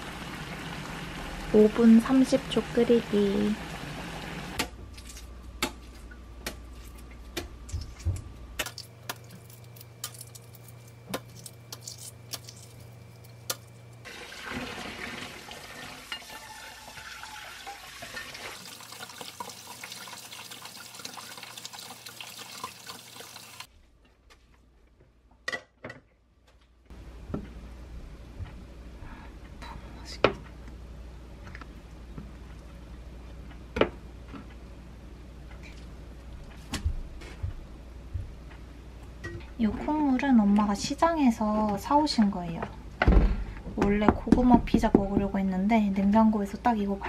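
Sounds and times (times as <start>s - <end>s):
water pouring into sink: 14.0s - 23.7s.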